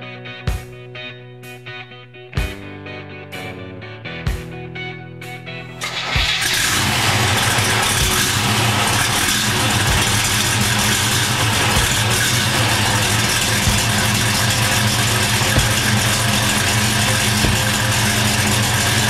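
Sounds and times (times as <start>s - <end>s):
car engine idling: 5.8s - 19.0s.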